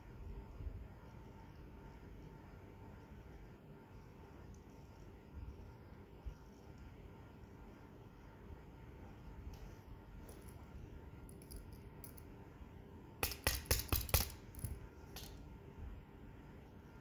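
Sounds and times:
small hammer tapping metal: 13.2 - 15.4.

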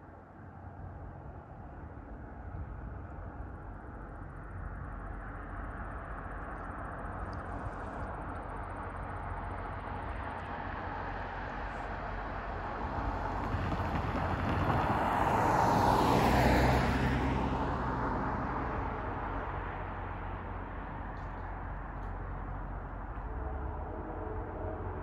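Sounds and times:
vehicle passing by: 12.8 - 20.4
steady low hum: 18.9 - 25.0.

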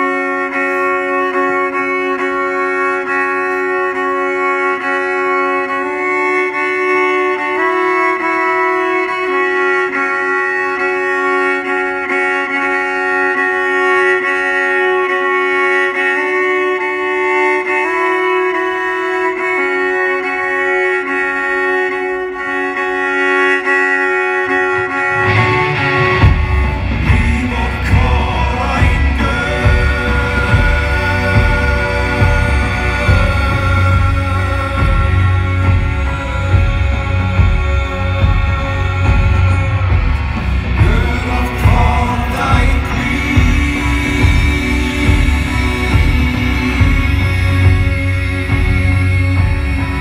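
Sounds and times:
full band playing: 0.0 - 50.0
violin long-held notes: 0.0 - 50.0
sustained drone: 25.1 - 50.0.

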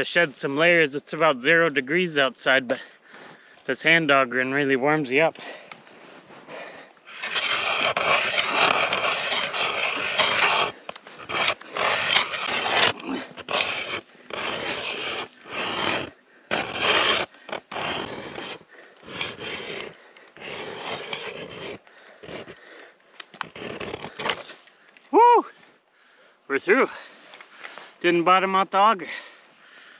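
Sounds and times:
ice auger grinding through ice: 7.0 - 22.7, 23.3 - 24.6.

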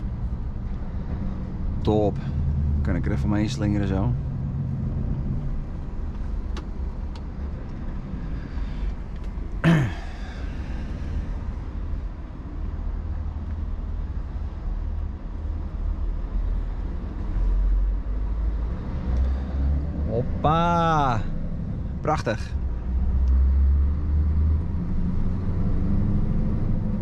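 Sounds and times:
truck engine rumble from cab: 0.0 - 18.5.

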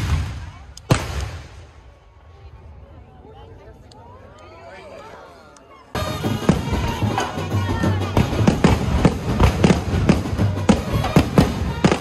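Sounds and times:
fireworks banging: 6.0 - 12.0
music playing: 6.0 - 12.0.

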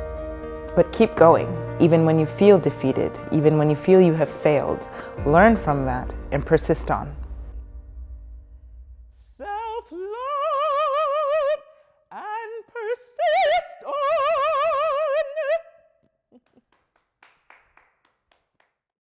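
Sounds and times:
woman singing opera: 9.3 - 15.9.

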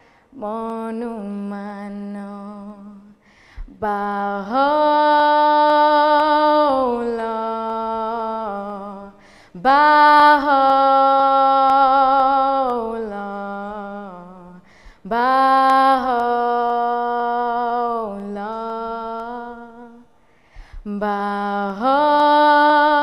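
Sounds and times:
person singing unaccompanied chant: 3.8 - 20.1, 20.9 - 23.0.

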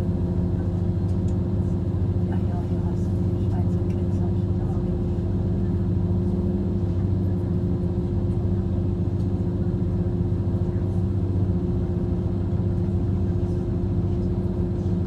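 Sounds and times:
diesel train engine drone: 0.0 - 15.0.

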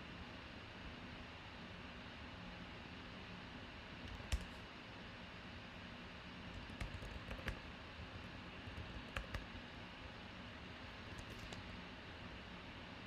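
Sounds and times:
keyboard and mouse clicks: 4.0 - 4.6, 6.5 - 7.6, 8.6 - 9.5, 11.1 - 11.7.

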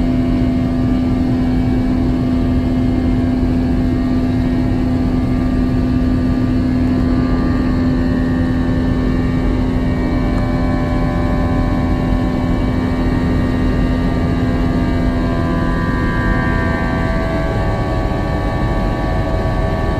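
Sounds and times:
jet engine drone in cabin: 0.0 - 19.9.

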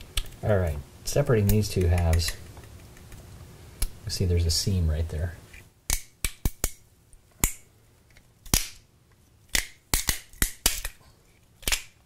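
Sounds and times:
plastic cracking and snapping: 11.6 - 12.0.

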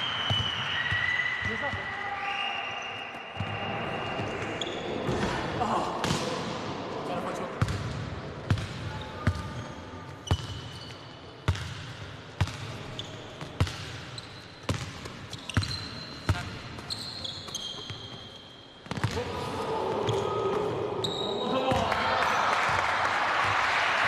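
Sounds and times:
sneakers squeaking on floor: 0.0 - 5.4, 8.5 - 19.2, 20.0 - 21.8.

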